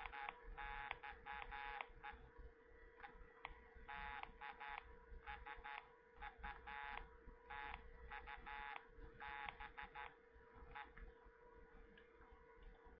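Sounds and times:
buzzy morse code beeps: 3.9 - 10.1.

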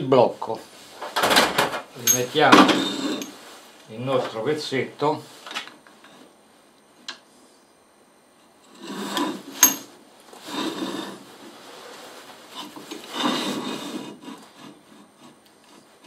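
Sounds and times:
metal scraping on metal: 2.0 - 3.4, 10.4 - 11.3, 12.5 - 15.9.

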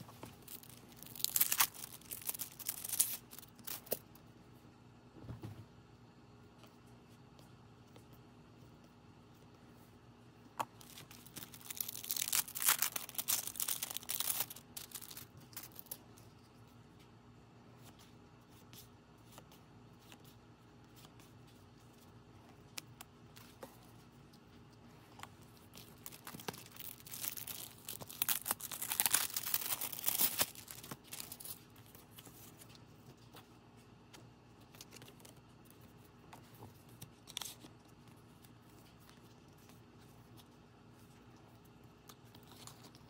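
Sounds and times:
plastic packet crinkling and tearing: 0.2 - 4.1, 10.8 - 16.0, 25.5 - 32.7.

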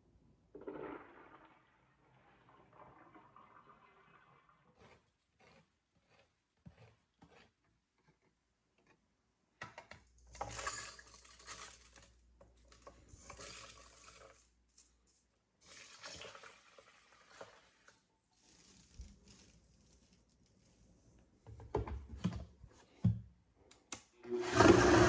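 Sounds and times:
thick cream pouring: 0.5 - 5.2, 10.4 - 20.3
rice sliding into blender jar: 24.2 - 25.0.

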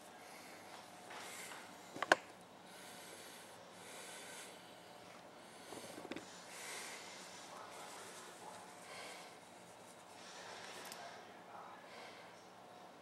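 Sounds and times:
person breathing close: 2.6 - 11.0.

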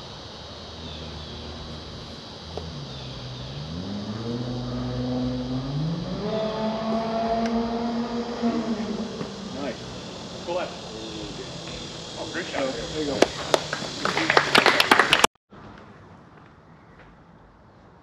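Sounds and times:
engine running: 0.0 - 15.2.

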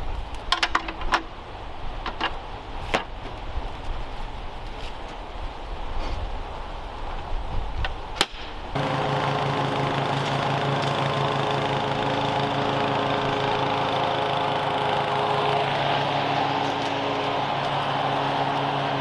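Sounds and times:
push mower engine running: 8.8 - 19.0.

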